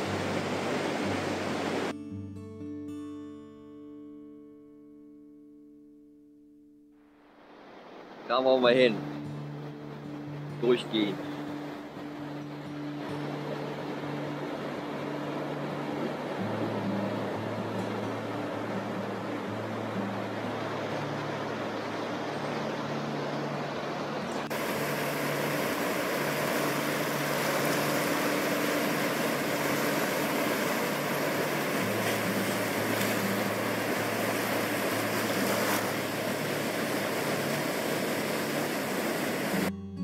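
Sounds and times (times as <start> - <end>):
surf breaking on sandy beach: 0.0 - 1.9, 10.6 - 39.7.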